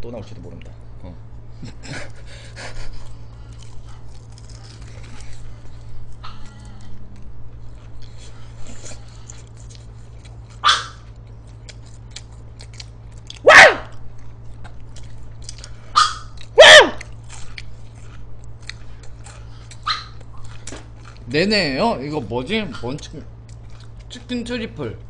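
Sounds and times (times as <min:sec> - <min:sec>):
faint chewing and eating: 0:00.3 - 0:25.0
small dog barking: 0:10.6 - 0:11.1, 0:13.4 - 0:14.0, 0:16.0 - 0:17.1, 0:19.8 - 0:20.2.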